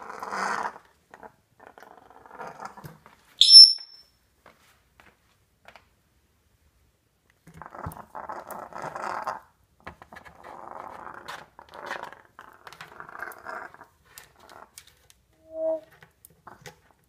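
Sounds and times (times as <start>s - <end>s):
parrot growling: 0.0s - 2.8s, 10.5s - 14.7s.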